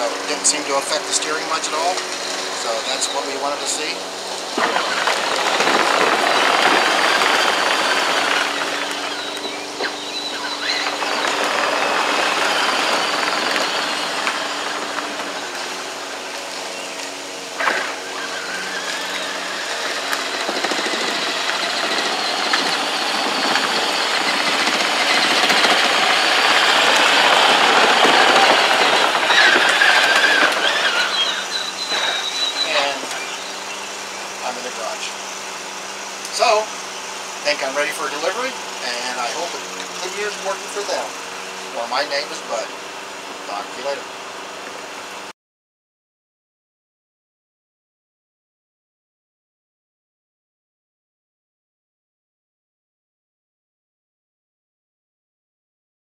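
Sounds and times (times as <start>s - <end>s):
electric motor whine: 0.0s - 45.3s
plastic wheels rattling on concrete: 4.5s - 15.4s, 17.6s - 33.1s.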